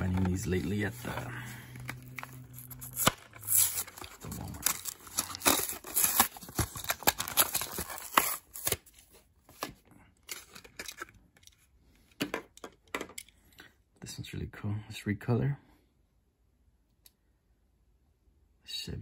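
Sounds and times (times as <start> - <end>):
plastic blister crackling and tearing: 0.0 - 9.0.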